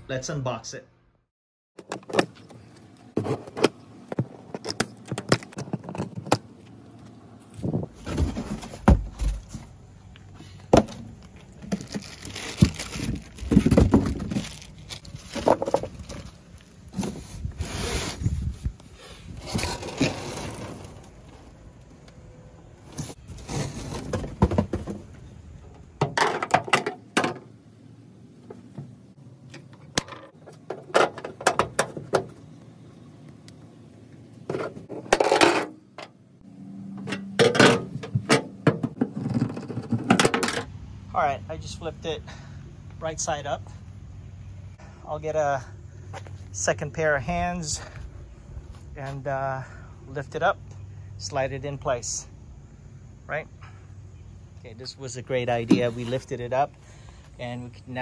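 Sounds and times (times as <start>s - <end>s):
cardboard and paper rustling: 11.1s - 18.4s.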